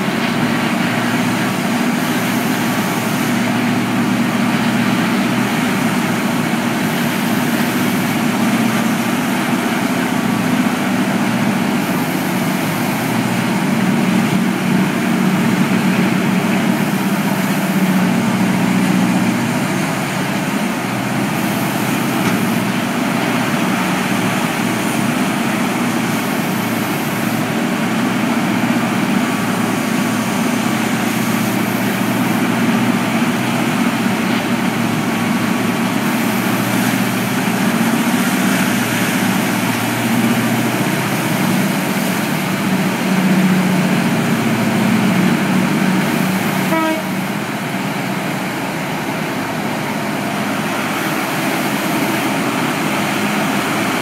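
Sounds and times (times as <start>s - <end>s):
mining shovel diesel engines droning: 0.0s - 54.0s.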